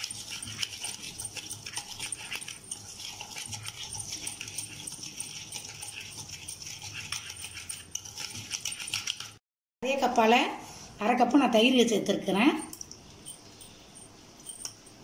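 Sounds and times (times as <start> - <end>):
whisk scraping against plate: 0.0 - 9.4.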